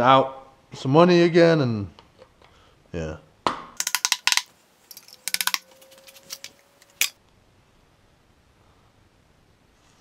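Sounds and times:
metal tools clinking: 3.8 - 7.2.

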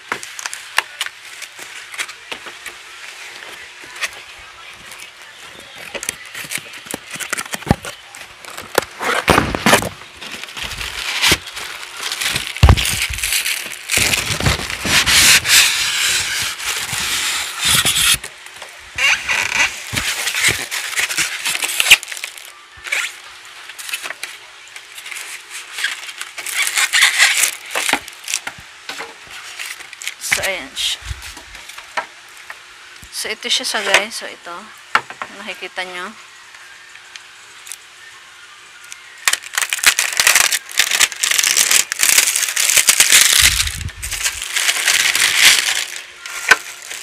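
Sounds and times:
cardboard and styrofoam scraping: 0.0 - 18.3, 19.0 - 23.2, 25.0 - 28.5, 39.3 - 47.0
plastic wrap crinkling: 0.0 - 32.5, 39.0 - 47.0.

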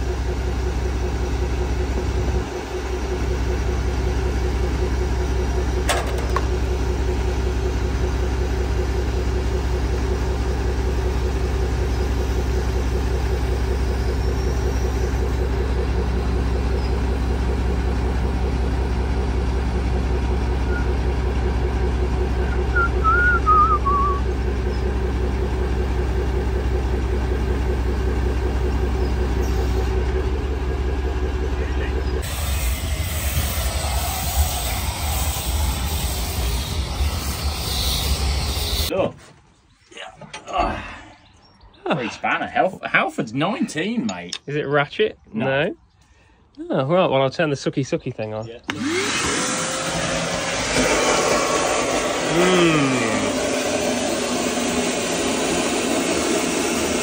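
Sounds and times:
diesel engine running: 0.0 - 39.1, 48.2 - 57.0
high warbling whistle: 22.4 - 24.3, 32.3 - 38.9.

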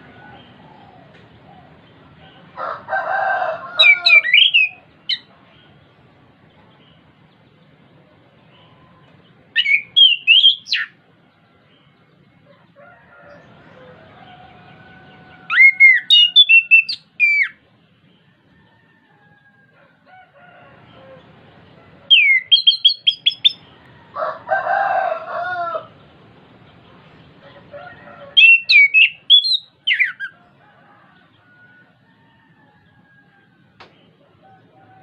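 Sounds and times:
rooster crowing: 0.0 - 1.2, 2.2 - 4.8, 12.5 - 16.9, 18.1 - 26.0, 27.4 - 35.0
thrush singing whistled notes: 3.8 - 5.3, 9.6 - 11.0, 15.5 - 17.6, 22.1 - 23.7, 28.3 - 30.4.

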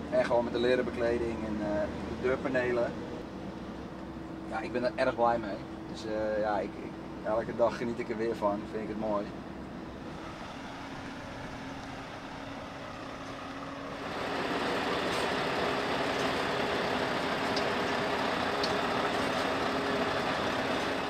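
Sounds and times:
truck engine idling: 5.2 - 21.0.

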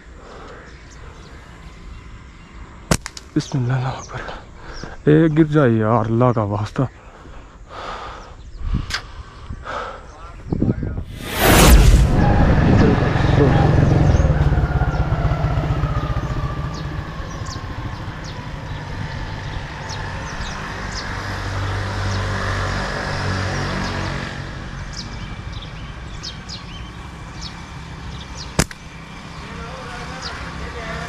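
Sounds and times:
vehicle engine running: 11.8 - 20.6.

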